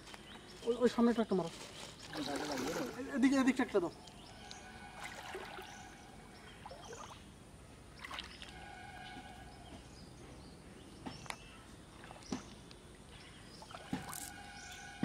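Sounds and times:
water sloshing around legs: 1.9 - 3.4, 4.1 - 7.2, 7.9 - 9.2
short water splashes: 2.0 - 3.5, 4.4 - 7.2, 7.9 - 9.2.

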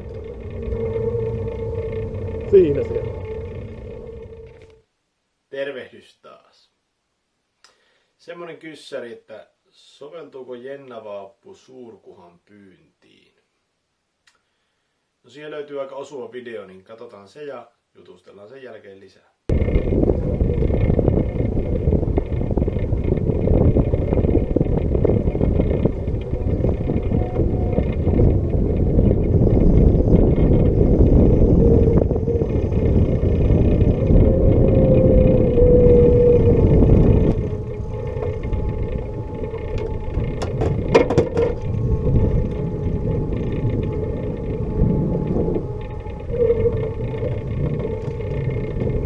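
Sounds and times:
outboard motor running: 0.0 - 4.8, 19.5 - 49.0
wind buffeting microphone: 0.0 - 4.8, 19.5 - 49.0
sharp clicks and knocks: 37.3 - 42.6.

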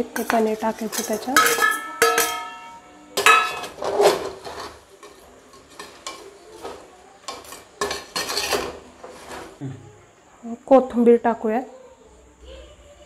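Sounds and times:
metal spoon scraping a pot: 0.0 - 9.6.

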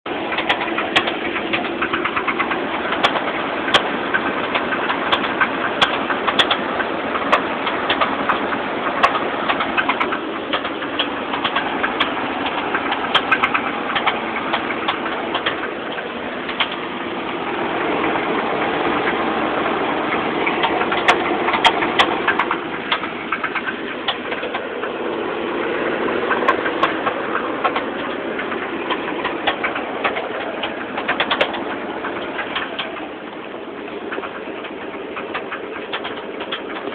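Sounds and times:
engine running: 0.0 - 36.9
irregular engine knocking: 0.0 - 36.9.

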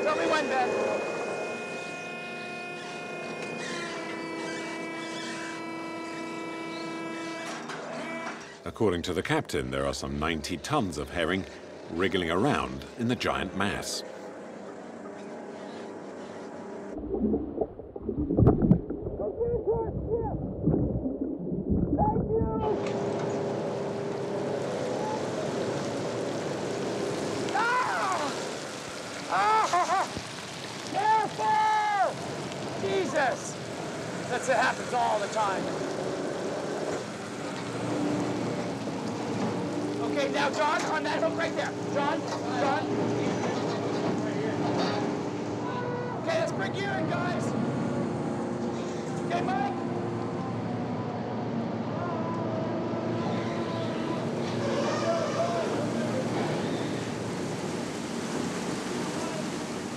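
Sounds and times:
boat machinery hum: 0.0 - 31.0, 32.2 - 59.9.

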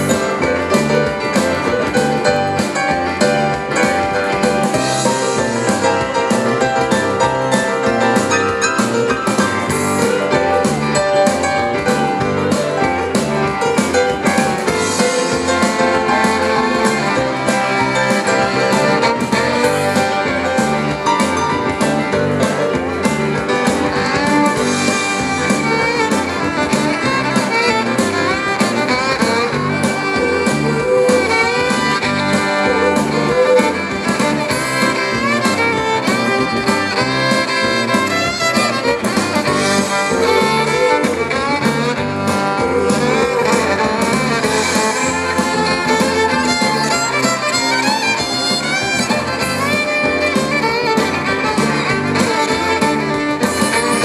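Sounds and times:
fiddle lead melody: 0.0 - 54.0
live band playing: 0.0 - 54.0.

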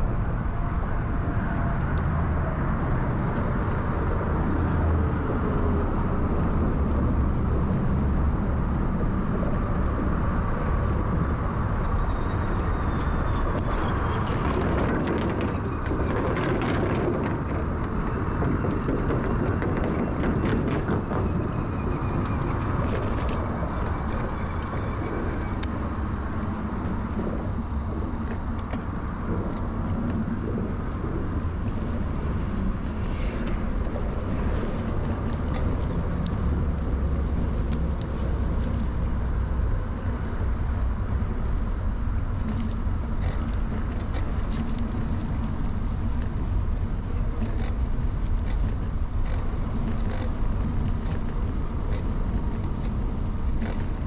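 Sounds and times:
wind and rolling noise: 0.0 - 54.0
bicycle clicks and rattles: 12.5 - 54.0.

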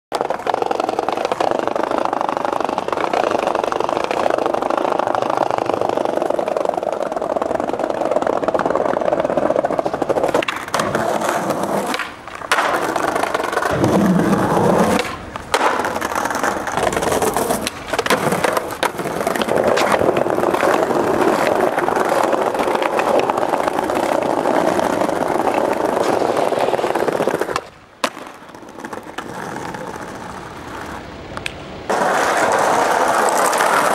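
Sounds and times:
skateboard tail pops and landings: 0.1 - 33.9
skateboard wheels rolling on pavement: 0.1 - 33.9.

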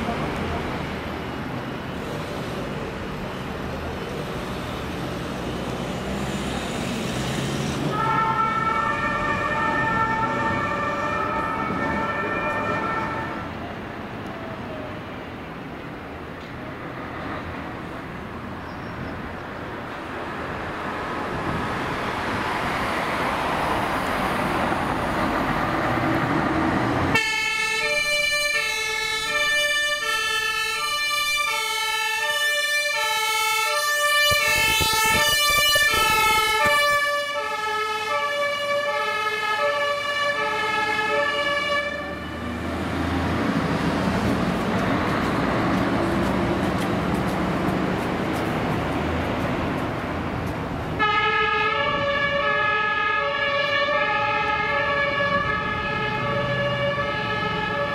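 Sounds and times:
fire truck diesel engine: 0.0 - 18.6, 19.2 - 57.9
two-tone emergency siren: 7.9 - 13.4, 27.1 - 42.6, 51.0 - 57.9.

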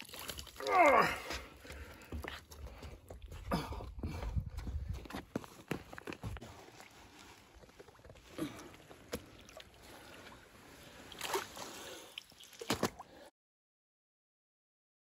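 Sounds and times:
water sloshing and splashing: 0.0 - 3.2, 5.9 - 13.3.

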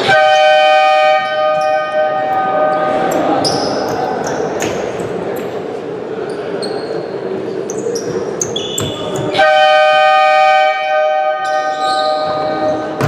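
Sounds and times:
loud horn: 0.0 - 3.1, 9.4 - 12.9
murmur of hall: 0.0 - 13.0
short high squeaks: 7.7 - 9.2, 11.4 - 12.8.

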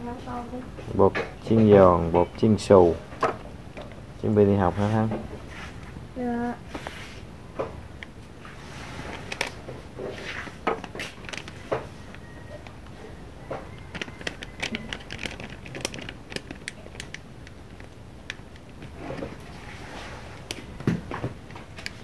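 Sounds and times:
packet rustling and crinkling: 9.1 - 9.6, 10.2 - 12.8, 13.5 - 19.5.

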